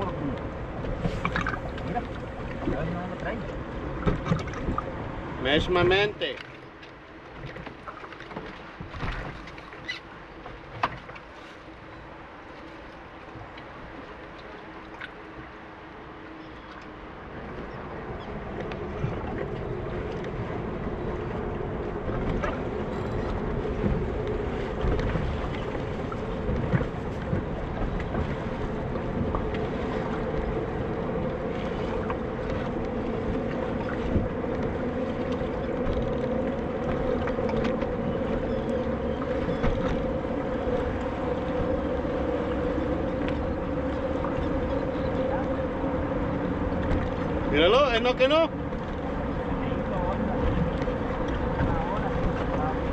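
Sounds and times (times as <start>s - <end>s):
boat motor humming: 0.0s - 52.9s
choppy water: 0.0s - 52.9s
wind: 0.0s - 52.9s.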